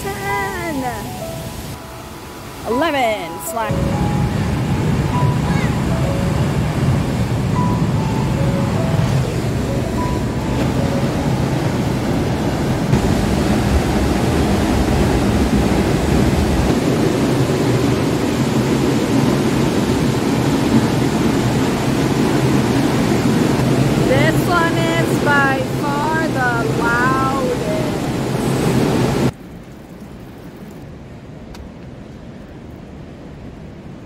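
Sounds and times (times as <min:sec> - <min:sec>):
waterfall rushing: 0:00.0 - 0:29.3.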